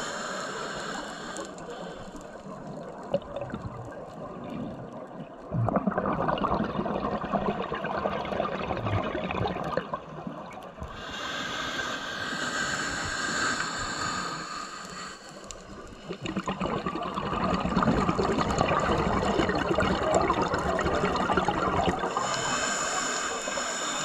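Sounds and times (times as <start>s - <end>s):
breath hissing through regulator: 0.0s - 2.5s, 10.9s - 16.7s, 21.9s - 24.0s
exhaled bubbles gurgling: 1.2s - 11.3s, 12.6s - 24.0s.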